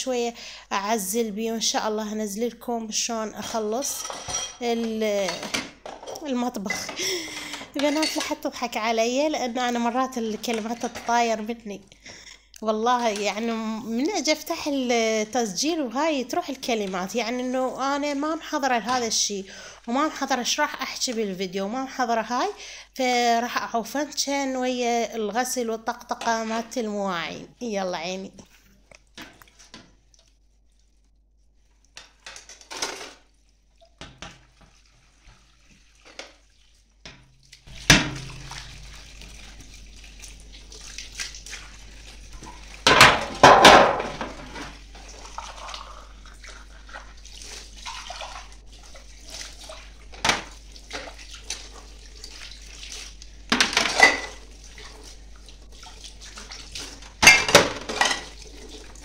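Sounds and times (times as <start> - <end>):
dishes clinking: 3.9 - 8.4, 53.6 - 54.4, 57.2 - 58.4
glassware knocking in sink: 42.9 - 44.5.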